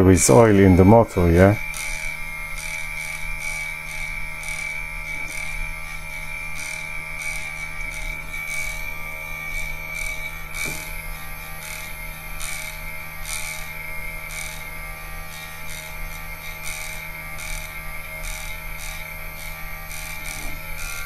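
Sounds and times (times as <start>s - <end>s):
compressor hum with high whine: 0.0s - 21.0s.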